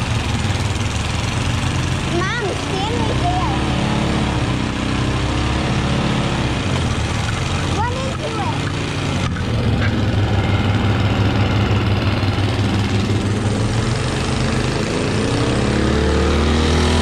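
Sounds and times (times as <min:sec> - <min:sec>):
snowblower engine running: 0:00.0 - 0:17.0.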